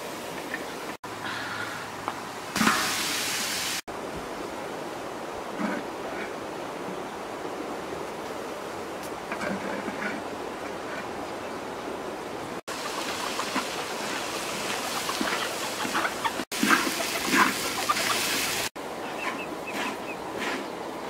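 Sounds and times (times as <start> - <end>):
rice sizzling in a wok: 2.6 - 3.8, 16.6 - 18.7
chickens clucking: 12.7 - 20.7.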